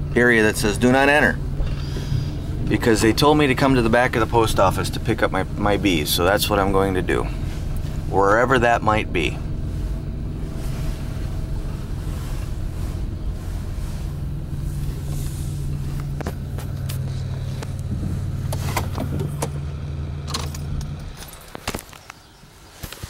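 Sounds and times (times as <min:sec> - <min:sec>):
car engine running: 0:00.0 - 0:22.0
clicks and rattles: 0:20.2 - 0:22.2.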